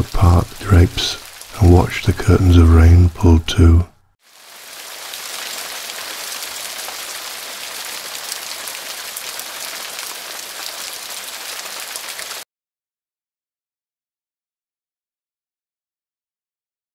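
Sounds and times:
rain falling: 0.0 - 12.4.

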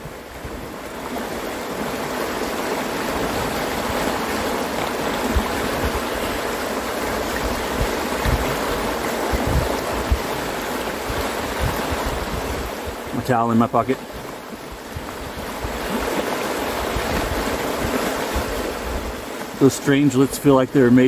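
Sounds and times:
river rapids rushing: 0.0 - 21.0
low thumps on microphone: 5.3 - 6.1, 7.4 - 10.4, 11.0 - 12.7.

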